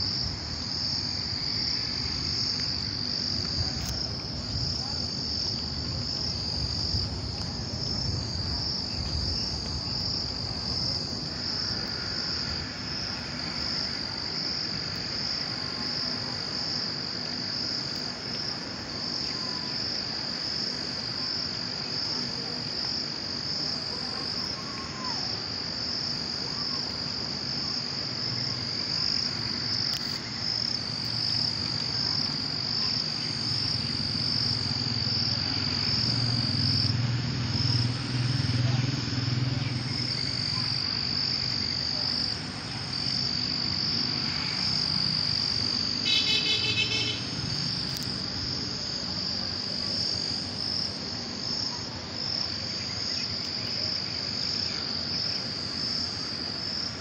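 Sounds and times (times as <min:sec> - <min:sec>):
insect chorus trilling: 0:00.0 - 0:57.0.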